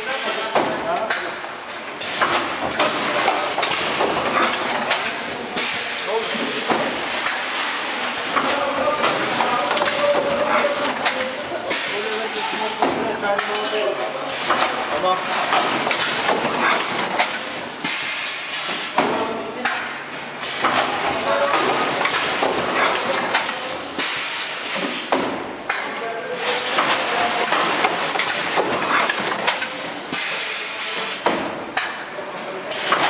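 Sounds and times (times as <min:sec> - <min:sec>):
pneumatic hiss: 0:28.2 - 0:31.3.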